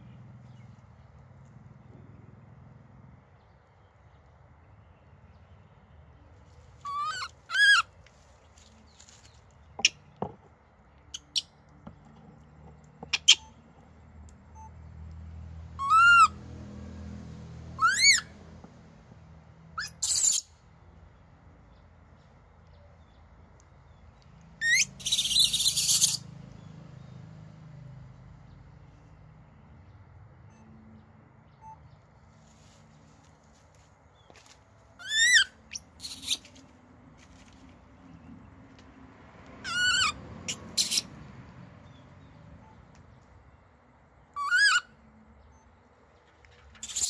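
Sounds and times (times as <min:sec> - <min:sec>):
baby monkey calling: 0:06.8 - 0:07.9, 0:13.1 - 0:13.5, 0:15.8 - 0:16.4, 0:17.8 - 0:18.3, 0:19.8 - 0:20.5, 0:24.6 - 0:26.3, 0:35.0 - 0:36.6, 0:39.6 - 0:41.1, 0:44.3 - 0:45.0, 0:46.8 - 0:47.0
monkey chirps: 0:06.8 - 0:07.9, 0:11.1 - 0:11.6, 0:13.1 - 0:13.6, 0:15.8 - 0:16.4, 0:17.8 - 0:18.3, 0:19.8 - 0:20.5, 0:24.6 - 0:26.3, 0:35.0 - 0:36.6, 0:39.6 - 0:41.2, 0:44.3 - 0:45.0, 0:46.8 - 0:47.0
monkey harsh scream: 0:06.8 - 0:07.9, 0:15.8 - 0:16.4, 0:17.8 - 0:18.3, 0:19.8 - 0:20.4, 0:24.6 - 0:26.2, 0:35.0 - 0:36.4, 0:39.6 - 0:41.1, 0:44.4 - 0:44.9.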